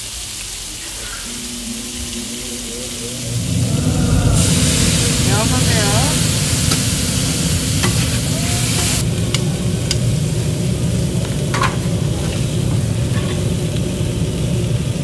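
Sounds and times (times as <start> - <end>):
food sizzling on a griddle: 0.0 - 15.0
liquid bubbling: 0.7 - 9.0.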